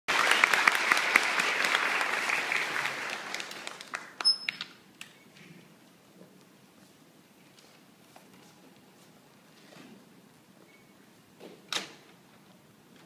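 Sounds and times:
audience applause: 0.1 - 4.2.

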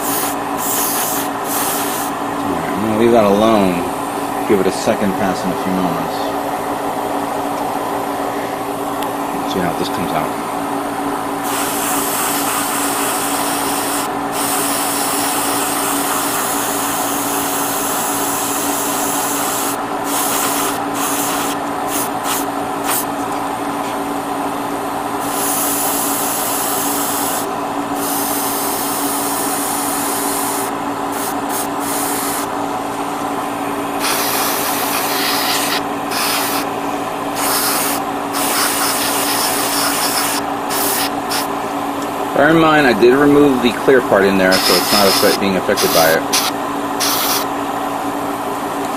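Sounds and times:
airbrush hissing: 0.0 - 2.2, 11.4 - 23.1, 25.2 - 32.5, 34.0 - 36.7, 37.3 - 41.5, 44.5 - 47.5
extractor fan hum: 0.0 - 48.9.

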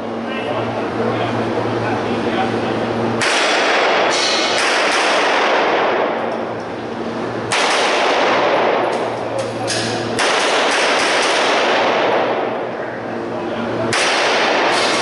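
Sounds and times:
pistol shots echoing indoors: 3.2 - 6.4, 7.5 - 9.2, 9.8 - 12.7, 13.9 - 15.0.

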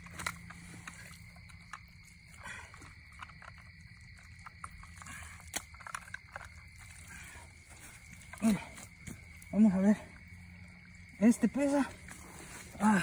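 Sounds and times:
small clicks and rustles: 0.0 - 9.5.

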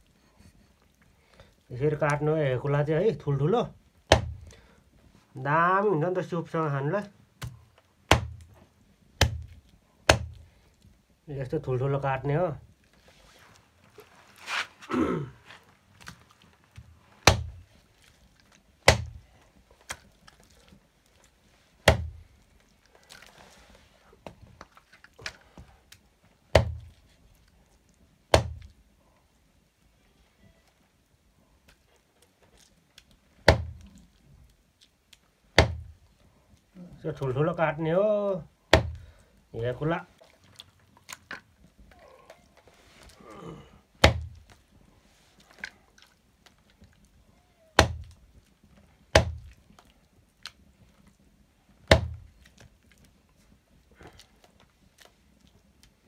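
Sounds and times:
knife chopping meat on wood: 4.1 - 4.5, 7.4 - 8.4, 9.2 - 9.5, 10.1 - 10.4, 17.3 - 17.6, 18.9 - 19.2, 21.9 - 22.2, 26.6 - 26.9, 28.4 - 28.7, 33.5 - 33.8, 35.6 - 35.9, 38.7 - 39.0, 44.0 - 44.4, 47.8 - 48.1, 49.2 - 49.5, 51.9 - 52.2
knife chopping meat: 10.1 - 10.4.

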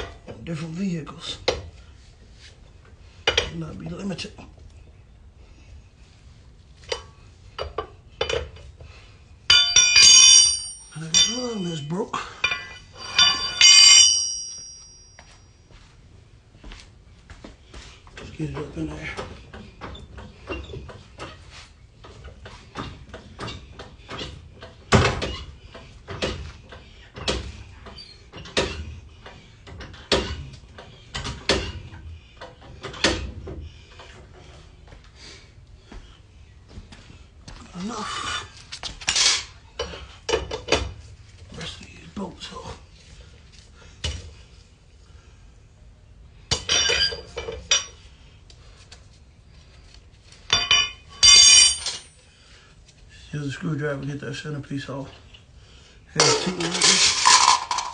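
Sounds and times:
metallic ring: 9.5 - 15.8, 46.6 - 48.0, 50.5 - 52.2.

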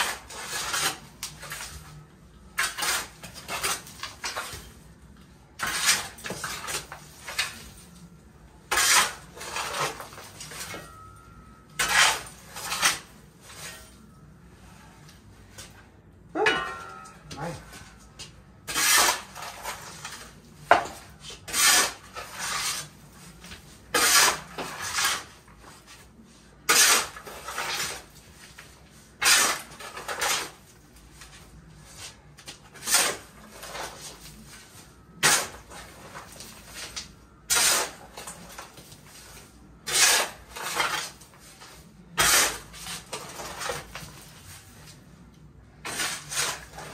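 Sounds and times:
shovel scraping into soil: 18.7 - 20.4, 21.3 - 23.0, 23.9 - 25.4, 35.2 - 38.0, 39.1 - 43.9, 45.8 - 46.9.

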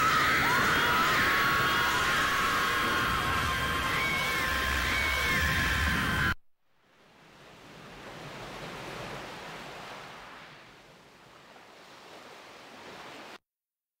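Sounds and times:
rushing noise: 0.0 - 6.4.

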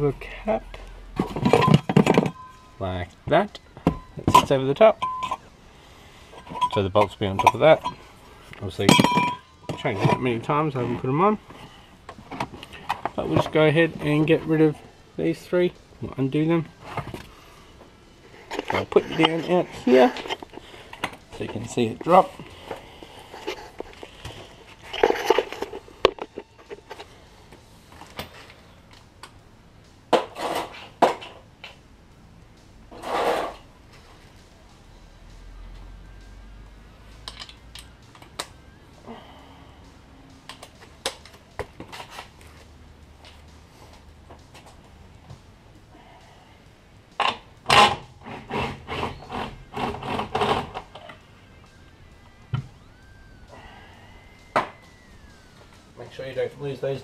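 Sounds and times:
metal tools clinking: 1.2 - 2.7, 4.2 - 5.5, 6.4 - 8.1, 8.7 - 11.0
scraping noise: 32.9 - 33.7.

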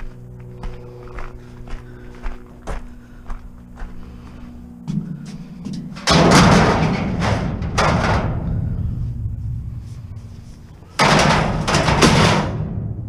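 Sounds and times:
scrap metal crashing into bin: 6.0 - 8.5, 11.0 - 12.7.

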